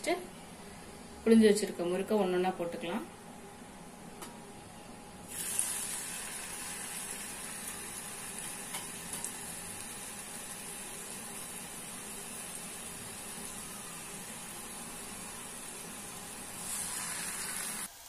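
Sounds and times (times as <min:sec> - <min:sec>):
dough sizzling in hot oil: 0:05.3 - 0:18.0.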